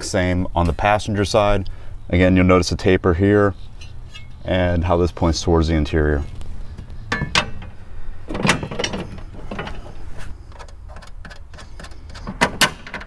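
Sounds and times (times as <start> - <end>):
metal rattles: 6.8 - 13.0
metal panel clicks and knocks: 7.1 - 9.9, 10.6 - 13.0.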